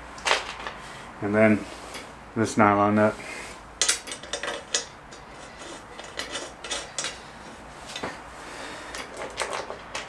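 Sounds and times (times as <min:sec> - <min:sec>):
metal screws and nuts clinking: 0:00.2 - 0:00.8, 0:03.8 - 0:07.2, 0:08.9 - 0:10.0.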